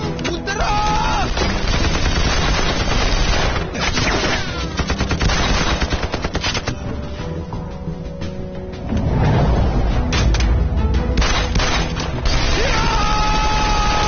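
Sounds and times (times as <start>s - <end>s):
men shouting: 0.4s - 1.4s, 12.5s - 14.0s
rifles and machine guns firing: 1.2s - 6.8s, 11.2s - 12.7s.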